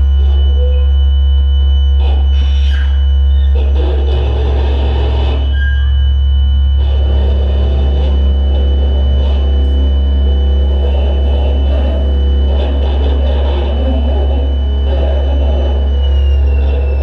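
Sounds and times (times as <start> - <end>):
thin high whistle: 0.0 - 4.0, 4.9 - 7.1
deep electronic drone: 0.0 - 17.0
mid-range held tones: 0.0 - 17.0.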